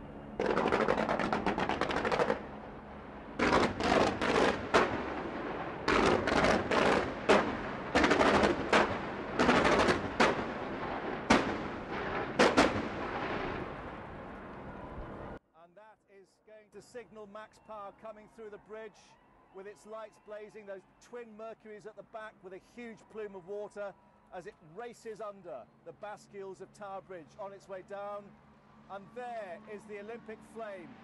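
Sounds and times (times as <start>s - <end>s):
fireworks bangs and crackle: 0.4s - 2.5s, 3.4s - 15.4s.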